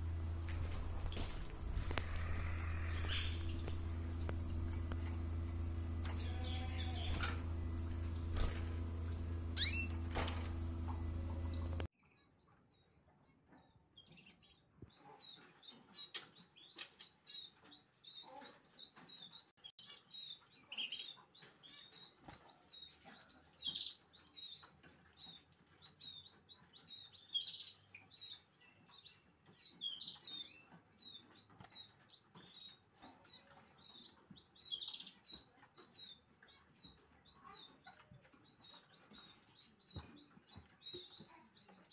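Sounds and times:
low hum: 0:00.0 - 0:11.9
canary chirping: 0:00.0 - 0:41.9.

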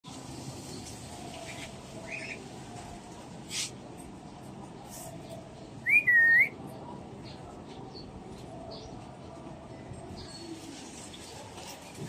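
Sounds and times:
cockatiel whistling: 0:05.9 - 0:06.5.

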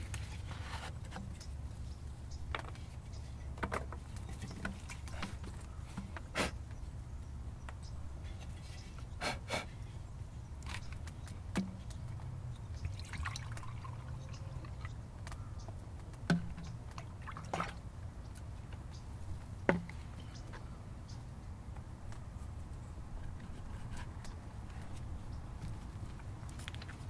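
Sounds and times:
hollow knocks of gourds: 0:16.0 - 0:16.8.

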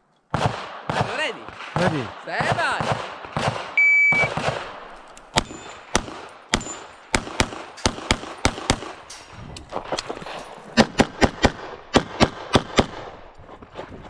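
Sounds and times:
pistol shots: 0:00.3 - 0:09.1, 0:10.8 - 0:13.3
shot timer beep: 0:03.8 - 0:04.4.

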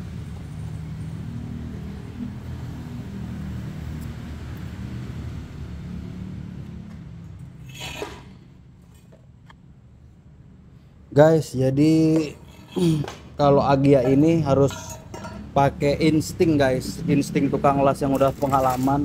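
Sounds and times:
metallic clank of pipe: 0:14.1 - 0:15.6.

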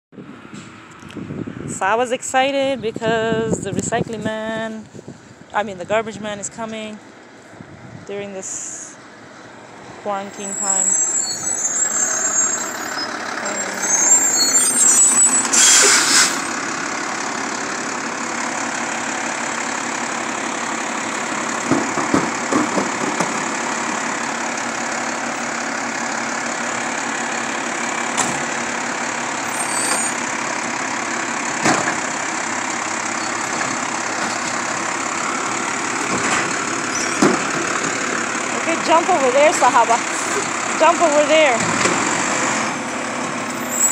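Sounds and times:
diesel engine idling: 0:00.2 - 0:43.9
loud air hiss: 0:15.5 - 0:16.5.

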